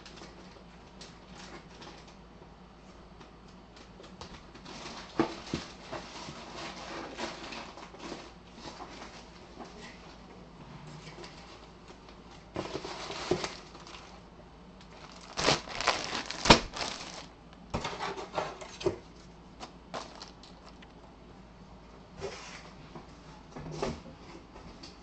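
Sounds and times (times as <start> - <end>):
plastic bag crinkling: 12.7 - 14.2, 14.8 - 17.4, 19.9 - 20.9.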